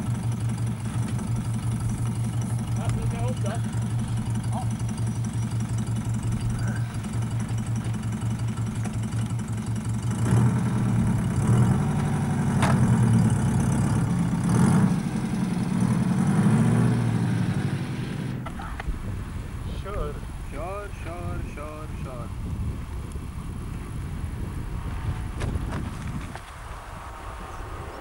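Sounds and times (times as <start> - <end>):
engine revving: 0.0 - 18.8
car engine idling: 0.0 - 28.0.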